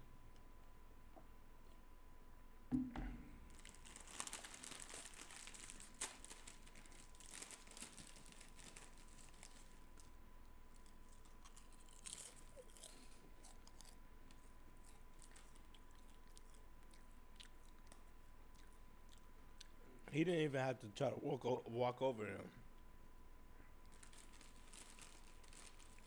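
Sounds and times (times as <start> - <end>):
soft thump: 2.7 - 3.2
wrapper crinkling: 3.5 - 13.9, 23.9 - 26.0.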